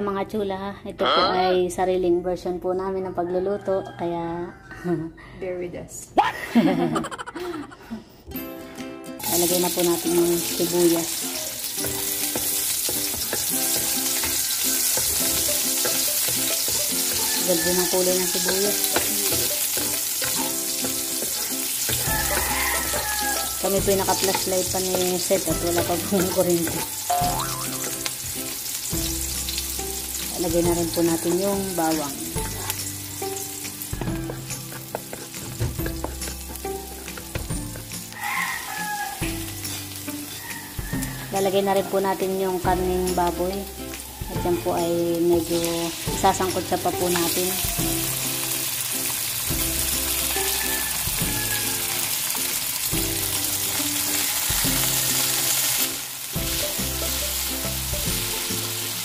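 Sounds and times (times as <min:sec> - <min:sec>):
onion sizzling in hot oil: 0:09.2 - 0:59.0
wooden spatula scraping a pan: 0:34.2 - 0:36.6.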